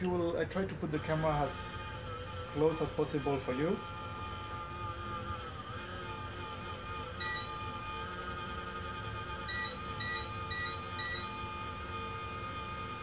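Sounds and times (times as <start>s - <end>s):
control panel beeps: 7.2s - 7.5s, 9.5s - 11.3s.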